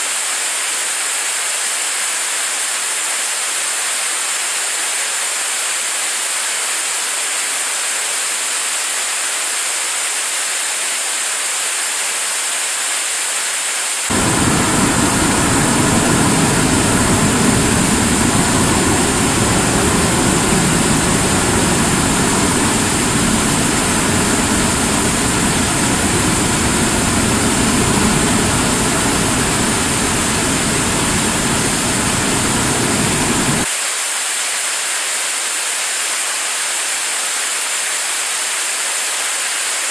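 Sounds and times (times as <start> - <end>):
rocket engine exhaust rushing: 14.1 - 33.7.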